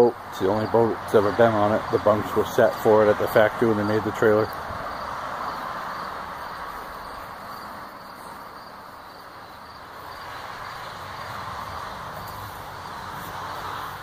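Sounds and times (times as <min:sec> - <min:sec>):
insects chirping: 0:00.0 - 0:14.0
steady hiss: 0:03.4 - 0:14.0.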